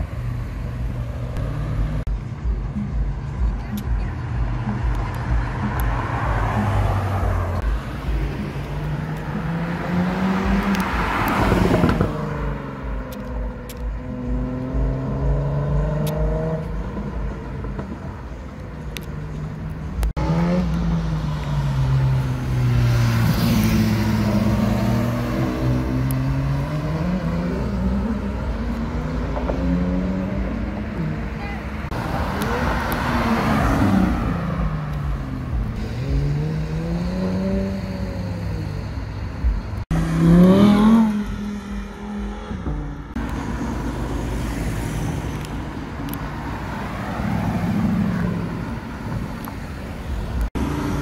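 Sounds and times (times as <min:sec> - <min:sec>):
sports car engine revving: 0:05.5 - 0:18.0, 0:19.2 - 0:39.2, 0:39.9 - 0:45.6.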